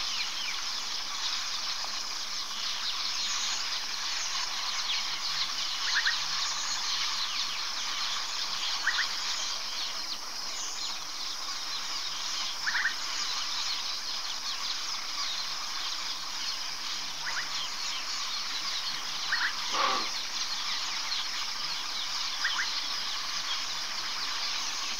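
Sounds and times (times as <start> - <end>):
insect chorus buzzing: 0.0 - 24.9
short chirping call: 19.3 - 20.3.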